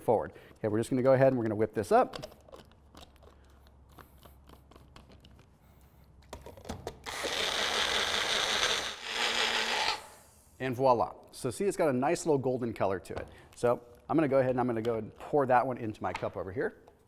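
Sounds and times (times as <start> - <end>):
blender running: 7.1 - 10.1.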